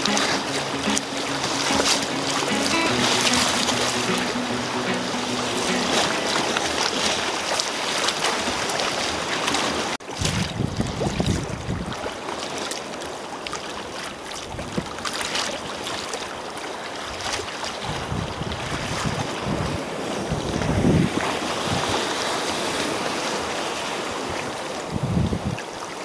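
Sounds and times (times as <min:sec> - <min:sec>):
wind buffeting microphone: 0:10.2 - 0:12.0, 0:17.8 - 0:22.2, 0:24.9 - 0:25.6.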